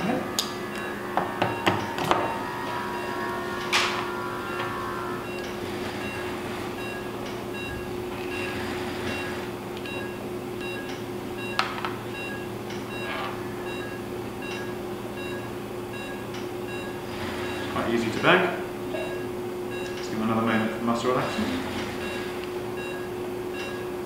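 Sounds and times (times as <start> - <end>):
monitor beeping: 0.0 - 17.7
equipment hum: 0.0 - 24.0.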